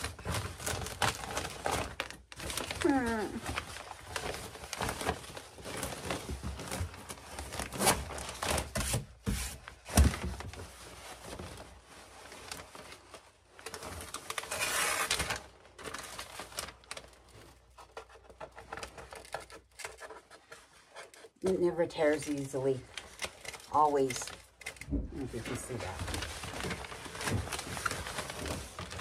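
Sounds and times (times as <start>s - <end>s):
stiff paper crinkling and rustling: 0.0s - 29.0s.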